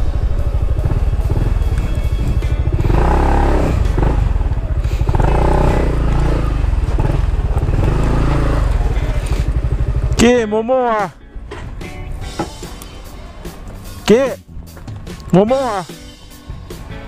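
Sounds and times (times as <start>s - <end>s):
scooter engine running low: 0.0s - 10.6s
background music: 0.0s - 17.0s.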